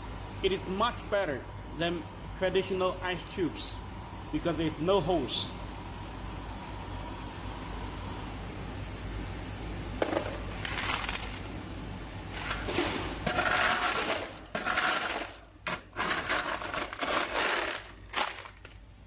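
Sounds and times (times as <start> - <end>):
ice cubes clattering and crunching: 10.6 - 11.5, 12.4 - 18.8.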